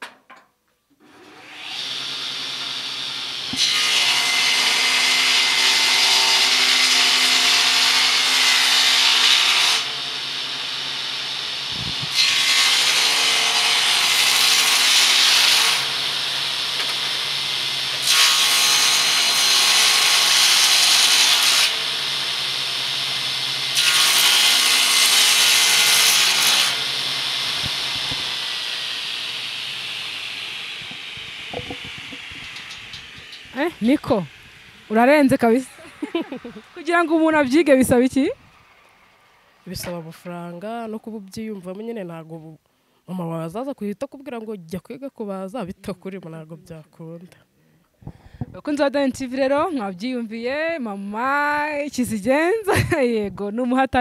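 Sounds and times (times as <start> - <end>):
circular saw cutting wood: 1.0 - 41.2.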